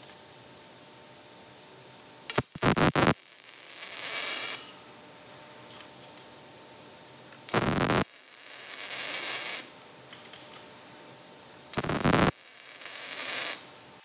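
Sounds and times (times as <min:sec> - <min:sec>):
welder arc crackling and hissing: 0:02.2 - 0:05.3, 0:07.4 - 0:09.9, 0:11.7 - 0:14.0.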